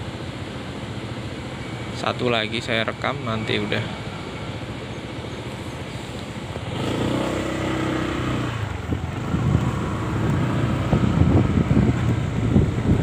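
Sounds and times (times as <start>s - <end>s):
scooter engine pulling away: 3.4s - 13.0s.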